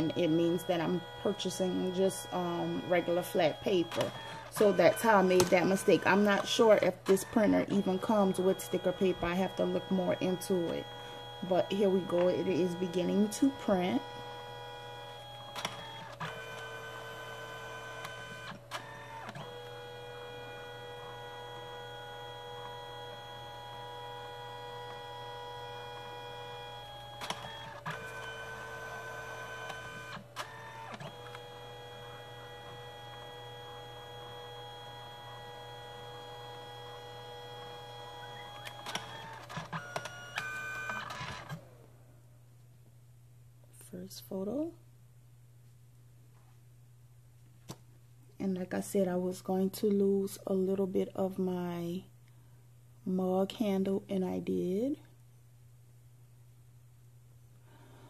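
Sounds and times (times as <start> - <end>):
printer motor whine: 0.0 - 42.0
printer paper feed clicks: 0.1 - 41.6.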